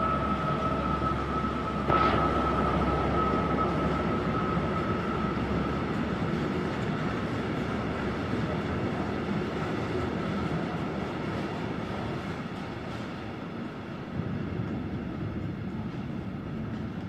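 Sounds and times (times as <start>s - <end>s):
high squeal: 0.0s - 6.3s
freight train rumbling on rails: 0.0s - 17.0s.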